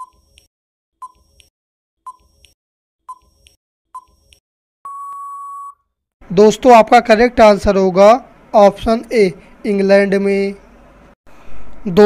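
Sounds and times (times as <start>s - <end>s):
long steady beep: 4.9s - 5.8s.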